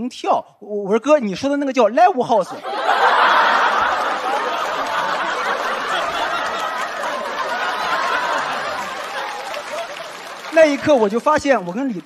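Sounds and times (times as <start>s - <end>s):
studio audience laughing: 2.4s - 11.2s.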